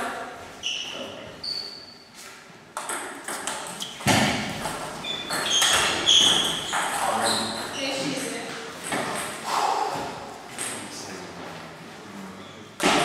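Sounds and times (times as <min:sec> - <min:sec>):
short high-pitched squeaks: 0:00.6 - 0:02.1, 0:05.0 - 0:08.0.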